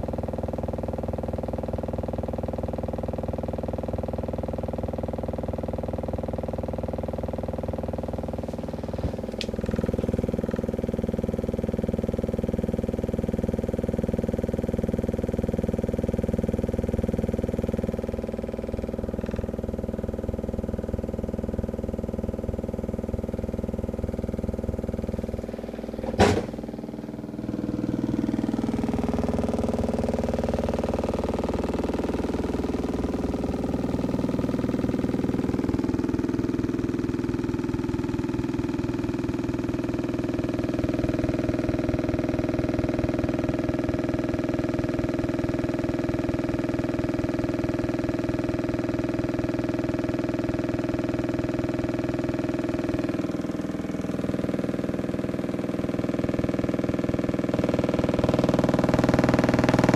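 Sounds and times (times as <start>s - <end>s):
low subwoofer drone: 7.6s - 40.0s, 52.7s - 59.9s
sharp knock: 26.0s - 26.7s.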